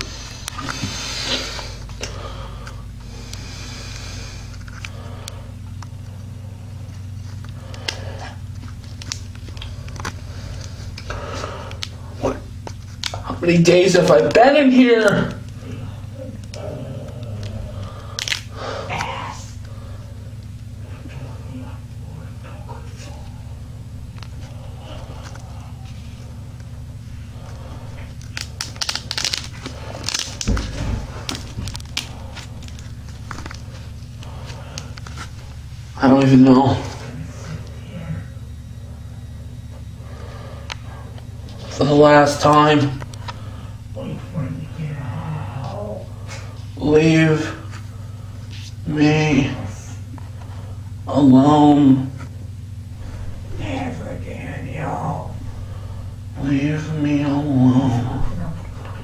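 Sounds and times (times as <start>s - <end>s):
steady low hum: 0.0s - 59.0s
rustling and crinkling handling noise: 22.4s - 36.2s.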